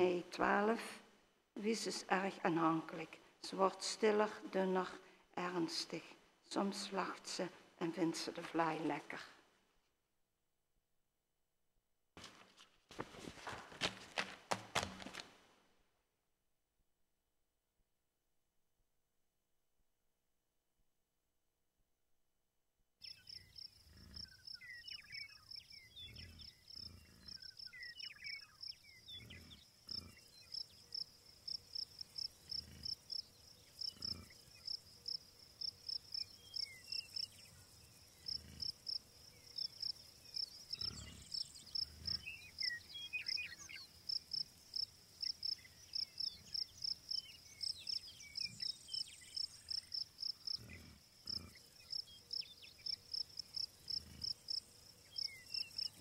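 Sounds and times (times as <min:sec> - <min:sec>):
bird chirps: 0:23.0 - 0:44.4, 0:45.2 - 0:56.0
cricket-like chirping: 0:23.0 - 0:56.0.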